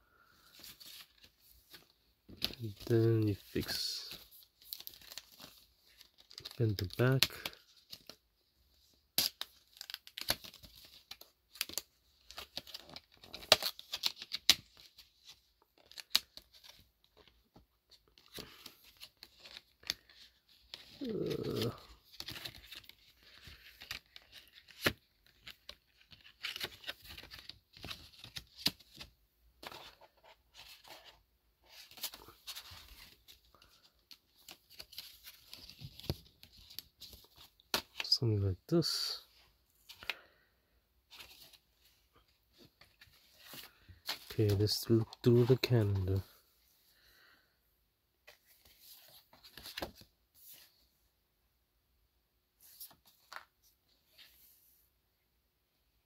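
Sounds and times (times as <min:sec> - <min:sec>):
plastic sleeve crinkling: 0:18.3 - 0:28.8.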